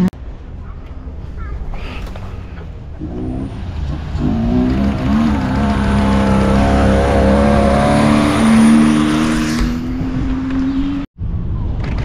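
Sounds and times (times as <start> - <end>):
car engine revving hard: 3.0 - 11.1.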